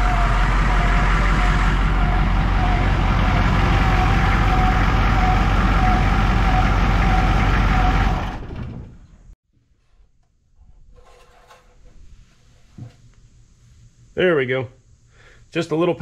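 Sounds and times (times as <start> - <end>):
diesel engine idling: 0.0 - 9.3.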